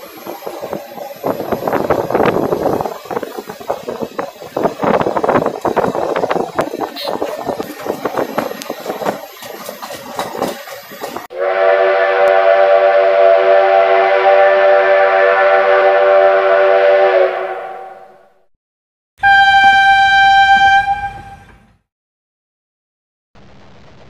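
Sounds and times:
train rattling clatter: 0:00.0 - 0:11.3
train horn chord: 0:11.3 - 0:18.3, 0:19.2 - 0:21.6
train whistle: 0:11.3 - 0:18.3, 0:19.2 - 0:21.6.

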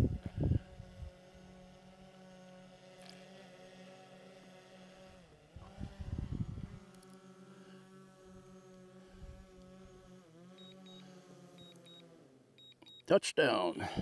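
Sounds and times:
drone propellers humming: 0:00.0 - 0:13.0
short high beeps: 0:11.6 - 0:12.0.

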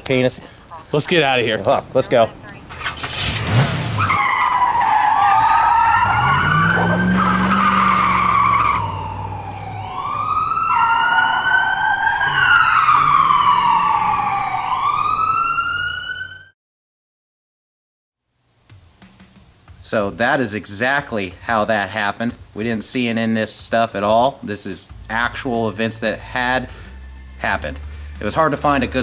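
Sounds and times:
tyre screech: 0:02.7 - 0:09.0
police siren wailing: 0:04.0 - 0:16.6, 0:26.6 - 0:27.8.

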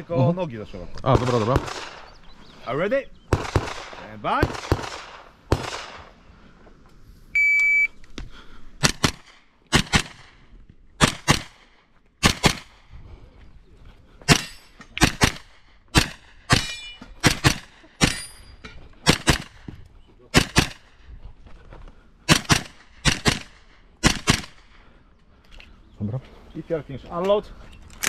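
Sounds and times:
rifle firing rapid shots: 0:01.1 - 0:02.1, 0:03.3 - 0:06.1, 0:08.8 - 0:10.4, 0:11.0 - 0:12.8, 0:14.3 - 0:18.2, 0:19.0 - 0:19.7, 0:20.3 - 0:20.9, 0:22.3 - 0:24.6
shot timer beep: 0:07.4 - 0:08.0.

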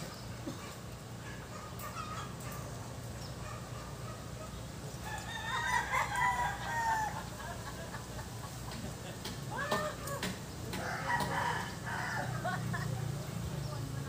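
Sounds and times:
rooster crowing: 0:05.0 - 0:07.6, 0:10.8 - 0:12.6.

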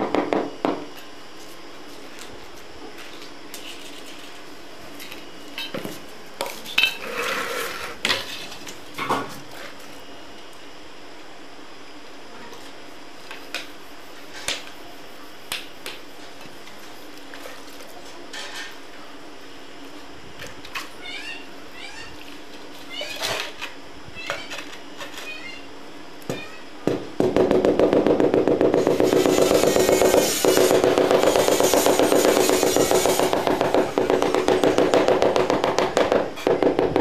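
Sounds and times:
steady background hum: 0:00.0 - 0:37.0
trowel knocking and scraping: 0:28.8 - 0:36.6.

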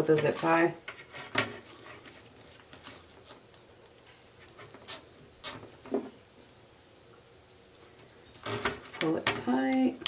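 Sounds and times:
plastic mesh rustling and crinkling: 0:00.0 - 0:06.6.

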